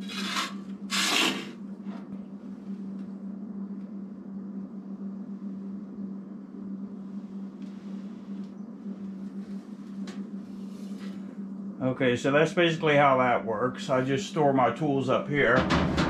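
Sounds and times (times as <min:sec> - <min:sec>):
metal scoop scraping stove floor: 0:00.0 - 0:01.6
steady low hum: 0:00.0 - 0:16.0.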